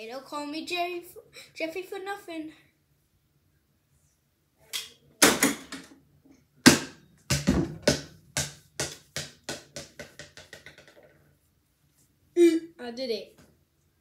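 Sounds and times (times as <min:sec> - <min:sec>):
basketball bouncing on floor: 0:06.6 - 0:11.0
basketball thumping: 0:06.6 - 0:11.0.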